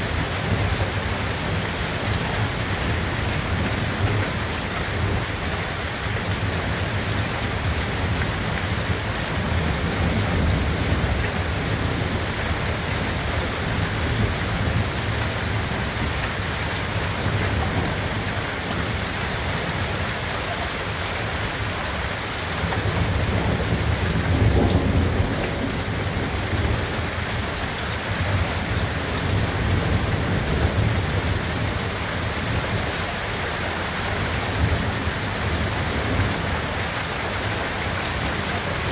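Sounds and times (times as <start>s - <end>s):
rain falling steadily: 0.0s - 38.9s
low rolling thunder: 6.2s - 16.2s, 22.7s - 32.9s.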